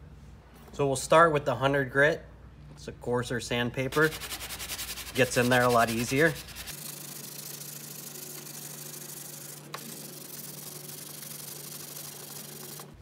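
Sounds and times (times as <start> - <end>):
sandpaper scratching by hand: 3.9 - 9.5.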